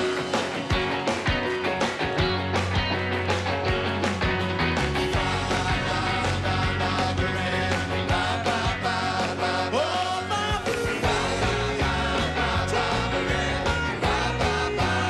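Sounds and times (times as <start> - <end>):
drum beat: 0.0 - 9.6, 10.5 - 15.0
rock and roll band playing: 0.0 - 15.0
people singing: 5.2 - 15.0.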